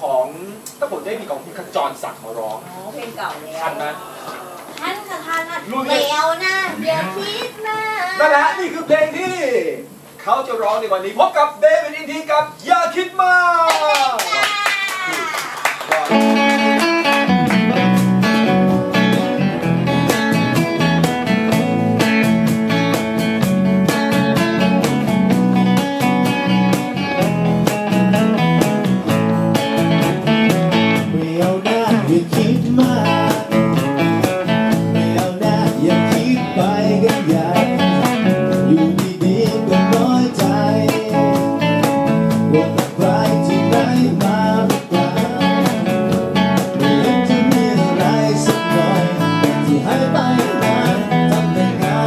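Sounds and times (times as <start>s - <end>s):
cajon beat: 4.4s - 9.5s, 13.6s - 52.0s
acoustic guitars strumming: 16.1s - 52.0s.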